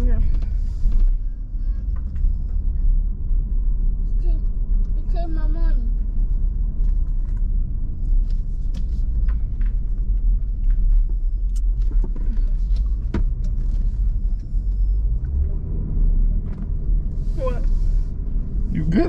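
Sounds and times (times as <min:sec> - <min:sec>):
car driving rumble: 0:00.0 - 0:19.0.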